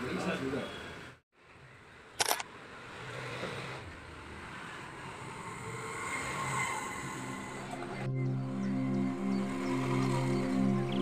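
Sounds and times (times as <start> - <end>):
sharp click: 2.2 - 2.5.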